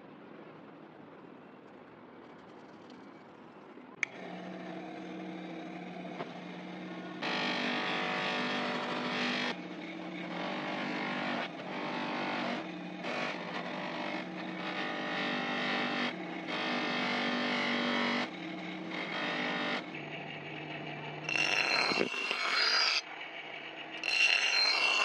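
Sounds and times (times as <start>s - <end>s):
bench grinder motor humming: 4.0s - 25.0s
blade rubbing on buffing wheel: 4.2s - 23.0s, 24.0s - 25.0s.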